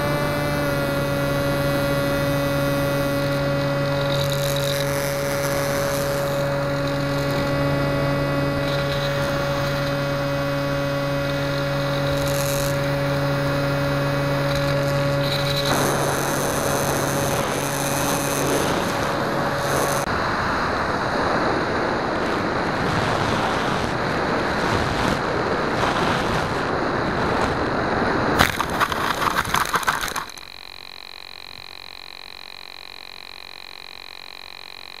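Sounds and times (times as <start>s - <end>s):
electric motor whine: 0.0s - 35.0s
high electronic whine: 0.0s - 35.0s
wind rush: 18.6s - 29.4s
knocks and scrapes on grass: 28.4s - 30.4s.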